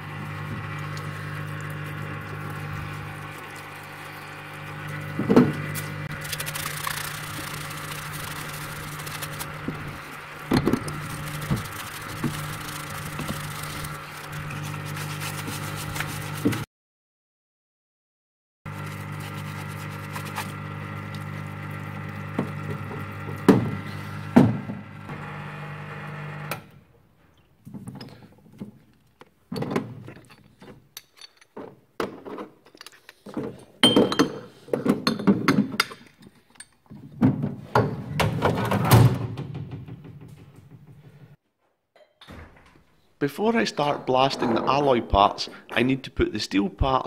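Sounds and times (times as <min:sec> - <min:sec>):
machine hum: 0:00.0 - 0:16.6
scrubbing metal parts: 0:05.6 - 0:16.6.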